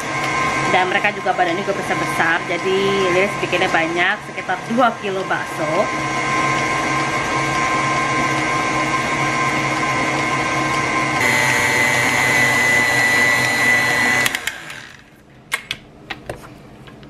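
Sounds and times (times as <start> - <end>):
stand mixer motor whine: 0.0 - 15.2.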